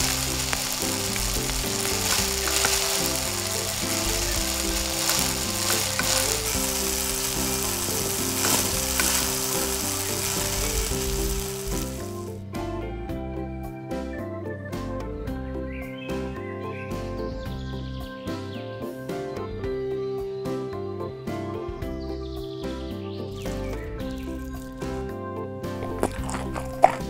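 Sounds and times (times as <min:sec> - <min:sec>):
food sizzling in pan: 0:00.0 - 0:12.3, 0:25.8 - 0:27.0.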